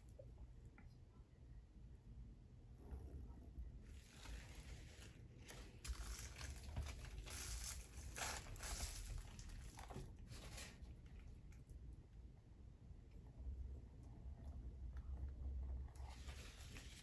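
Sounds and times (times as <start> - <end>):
rustling and crinkling: 3.8 - 11.7, 15.0 - 17.0.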